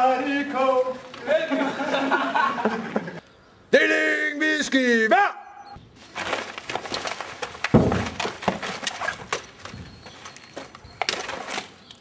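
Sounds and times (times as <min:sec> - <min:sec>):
toy rifles and vests handled: 0:06.0 - 0:12.0
loud thump: 0:07.7 - 0:08.3.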